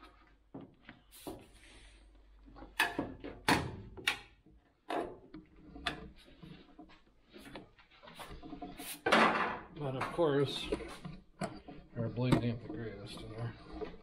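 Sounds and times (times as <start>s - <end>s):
quiet scraping: 4.8s - 14.0s.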